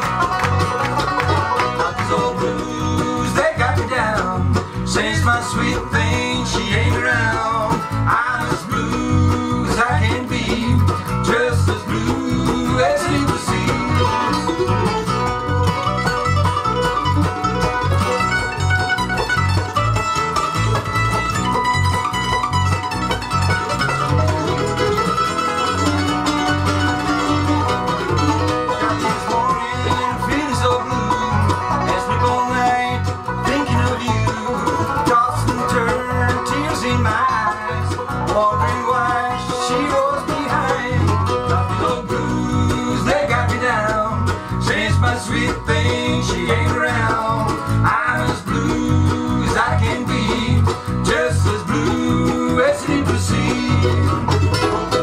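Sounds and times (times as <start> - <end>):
acoustic guitar: 0.0 - 55.0
banjo: 0.0 - 55.0
bass pulsing on the beat: 0.0 - 55.0
mandolin: 0.0 - 55.0.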